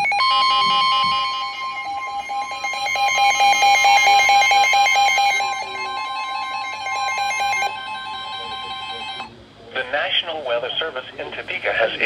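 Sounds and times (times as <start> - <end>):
fast pulsing alarm beep: 0.0 - 9.3
steady high warning tone: 0.0 - 12.0.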